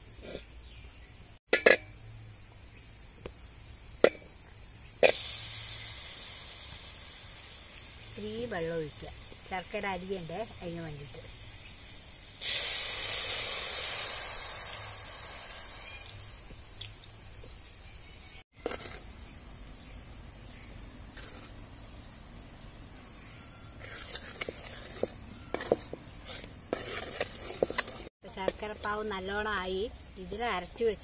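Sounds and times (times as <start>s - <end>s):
water hissing in hot pan: 5.0s - 18.4s
syrup bubbling in pan: 12.4s - 17.1s
ladle scraping metal pan: 23.8s - 28.1s.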